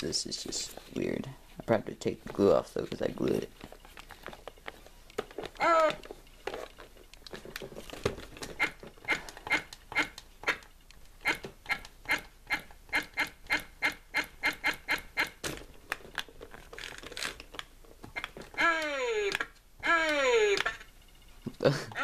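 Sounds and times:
toy motor buzzing in bursts: 18.6s - 20.9s.

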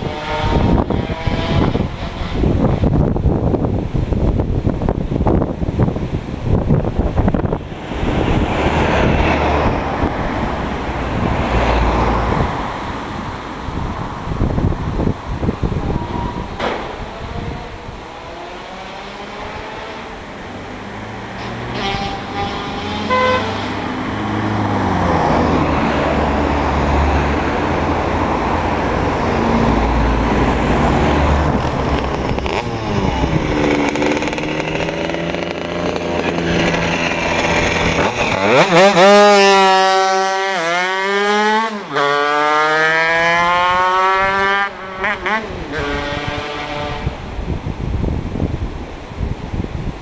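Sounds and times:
cars passing: 0.0s - 50.0s
scooter engine revving: 21.2s - 47.5s.

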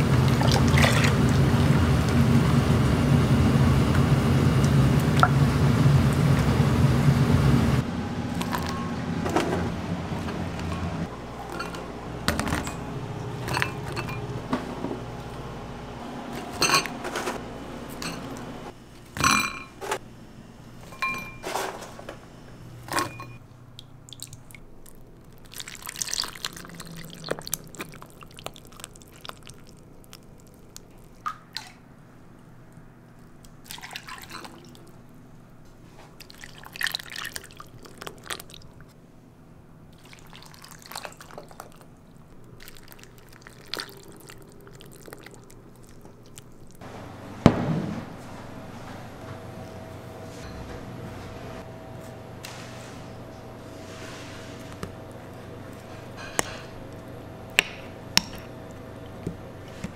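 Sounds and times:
metal ladle clinking on bowls: 11.5s - 14.4s, 16.5s - 17.1s
liquid pouring and dripping: 23.8s - 31.8s, 33.4s - 35.0s, 36.2s - 39.0s, 40.0s - 46.8s
thick soup being stirred: 24.2s - 31.8s.

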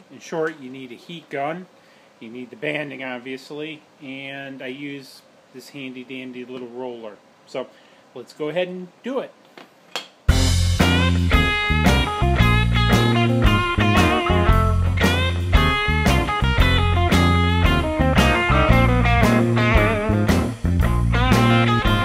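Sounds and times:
electric guitar lead: 10.3s - 22.0s
steady beat: 10.3s - 22.0s.

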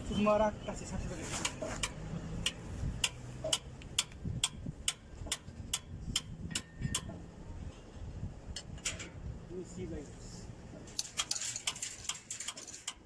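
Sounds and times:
wrench clicking on bolts: 1.4s - 7.2s, 10.9s - 13.0s.

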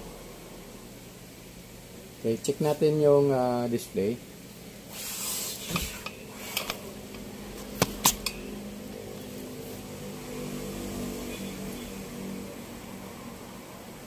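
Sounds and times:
sharp clicks and knocks: 5.7s - 8.5s.

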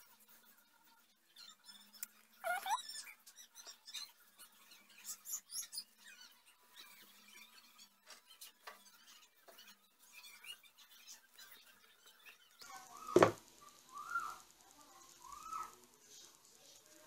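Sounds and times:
high-pitched chirps and squeaks: 1.2s - 14.5s.

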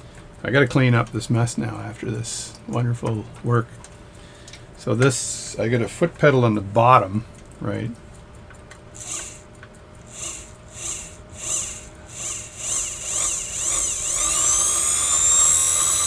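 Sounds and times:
sewing machine motor whining: 9.0s - 9.4s, 10.1s - 16.0s.

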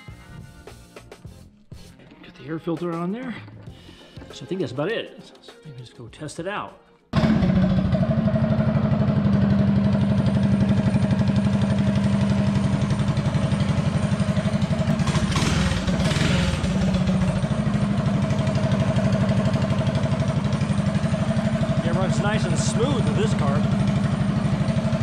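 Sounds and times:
mini bike engine idling: 7.2s - 25.0s.

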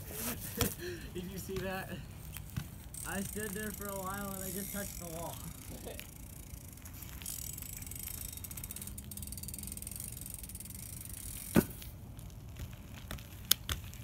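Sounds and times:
bike hub clicking: 2.3s - 14.0s
bike knocking against wall: 11.5s - 11.8s.

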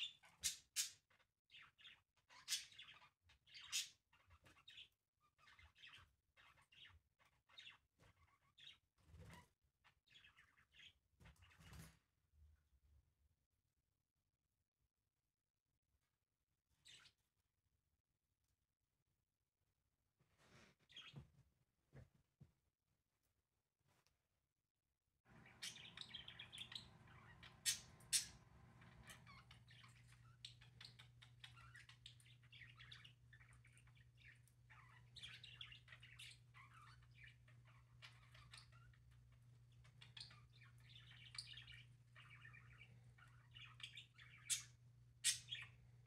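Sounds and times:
budgerigars chirping and chattering: 0.0s - 9.4s, 25.3s - 46.0s.

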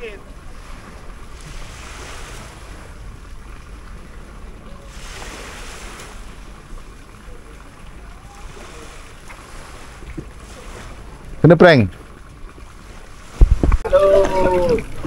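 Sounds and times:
small waves washing onto beach: 0.0s - 15.0s
wind rumbling on microphone: 12.0s - 15.0s.

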